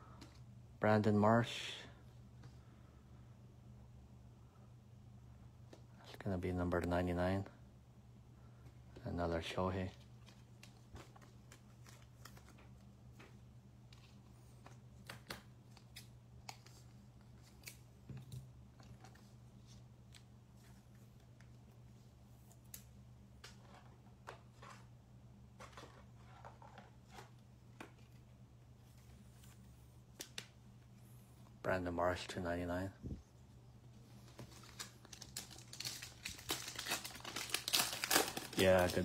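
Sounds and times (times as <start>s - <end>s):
trading cards clicking and rustling: 10.1s - 19.2s, 34.3s - 39.0s.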